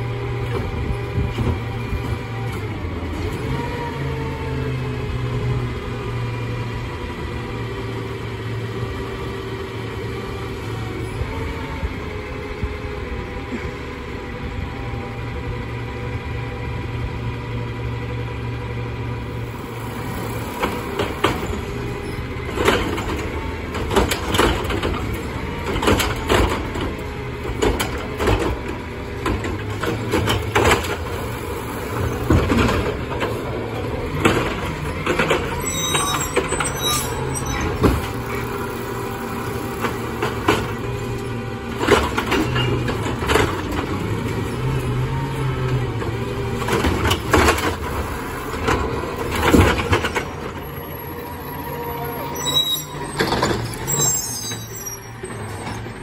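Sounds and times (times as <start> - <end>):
recycling clattering into hopper: 46.6 - 50.6.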